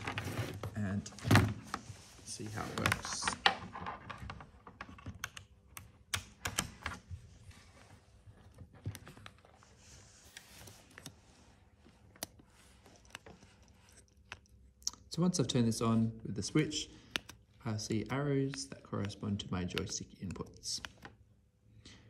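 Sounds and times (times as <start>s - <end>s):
faint clicks and taps of handling: 17.0s - 21.2s.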